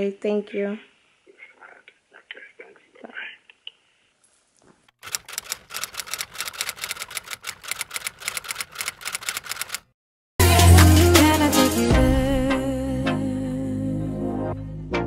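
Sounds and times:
typewriter keystroke clicks: 5.0 - 9.9
loud music: 10.4 - 15.0.

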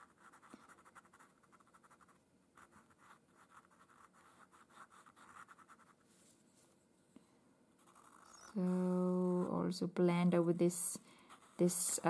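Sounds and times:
pencil scratching on paper: 0.0 - 6.0, 7.8 - 8.6, 11.2 - 12.0.

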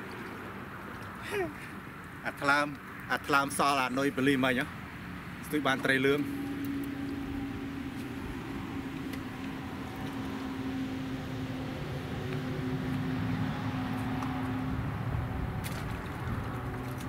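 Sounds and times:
engine humming: 5.0 - 17.0.

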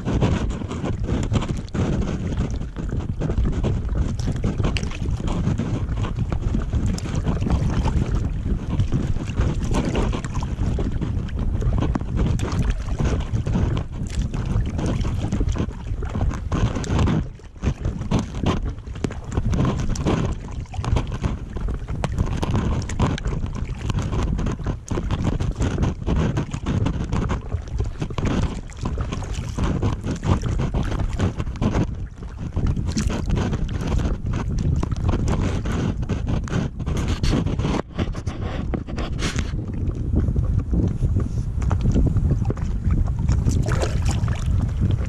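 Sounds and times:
water lapping against hull: 0.0 - 45.0
wind buffeting microphone: 0.0 - 45.0.

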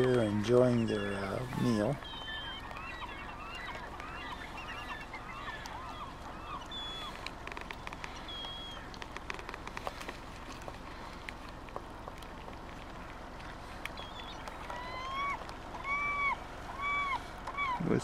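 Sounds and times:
gulls and eagles calling: 0.0 - 10.0, 12.9 - 18.0
high whistled bird notes: 0.7 - 7.2, 8.2 - 8.9.

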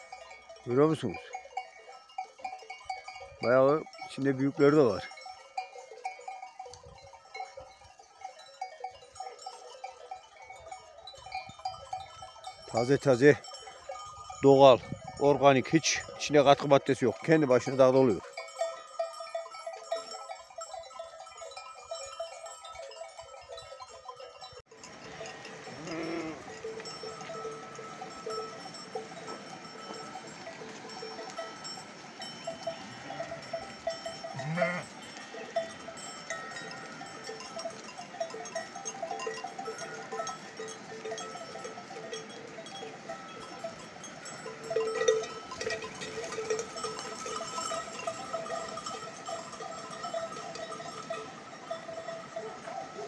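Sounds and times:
animal bells clinking: 0.0 - 53.0.

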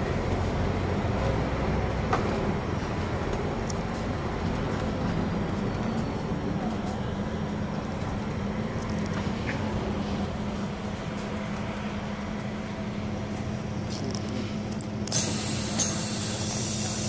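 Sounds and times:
bus engine drone: 0.0 - 17.0
loud air hiss: 15.1 - 17.0.

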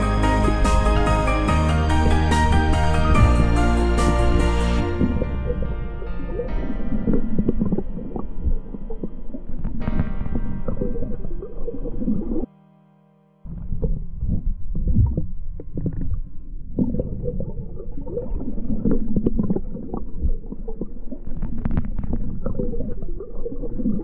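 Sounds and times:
underwater rumble with gurgles: 0.0 - 12.5, 13.5 - 24.0
music: 0.0 - 16.6.

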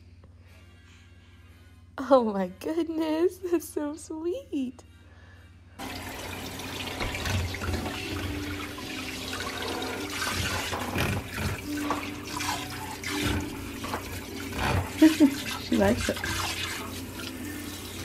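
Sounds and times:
water spraying into steel sink: 5.8 - 18.0.

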